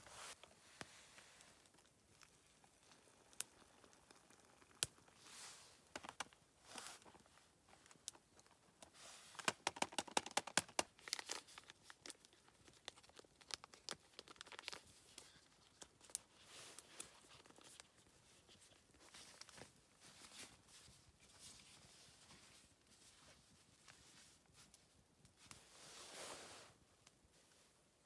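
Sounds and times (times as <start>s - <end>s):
foil pouch tearing and crinkling: 9.4s - 16.2s.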